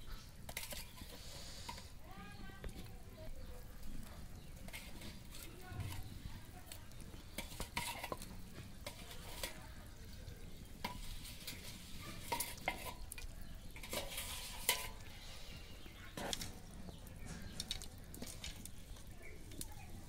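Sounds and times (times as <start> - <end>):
spatula scraping metal pan: 0.0 - 2.0, 4.3 - 6.3, 6.9 - 16.5
frying sizzle: 0.0 - 20.0.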